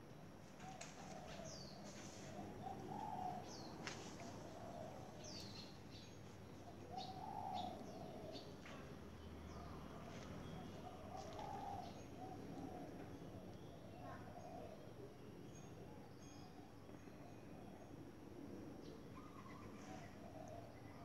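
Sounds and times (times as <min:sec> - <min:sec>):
doves cooing: 0:00.6 - 0:15.0, 0:19.0 - 0:21.0
small birds chirping: 0:00.6 - 0:15.0.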